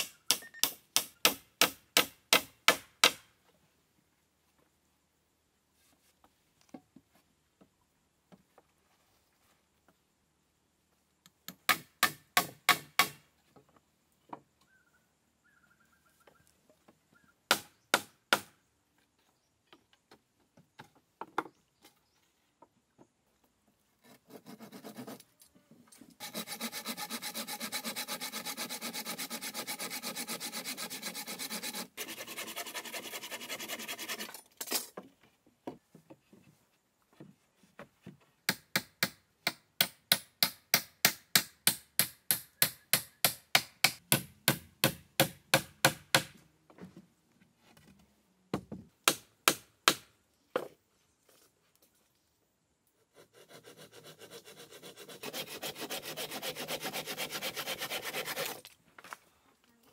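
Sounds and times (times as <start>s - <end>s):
hand saw cutting wood: 24.0s - 25.3s, 26.2s - 34.4s, 53.1s - 58.7s.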